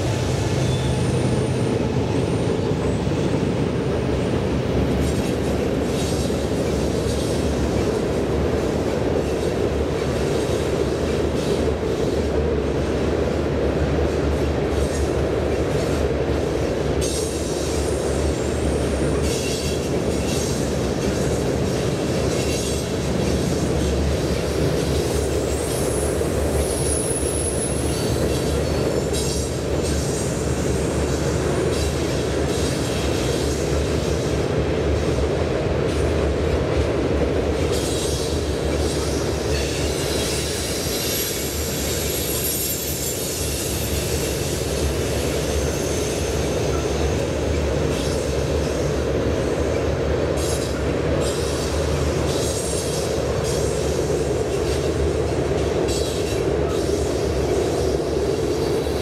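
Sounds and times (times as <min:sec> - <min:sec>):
rail joint clicks: 0:00.0 - 0:59.0
train wheels rumbling on rails: 0:00.0 - 0:59.0
high wheel squeal: 0:00.5 - 0:03.0, 0:37.8 - 0:48.3.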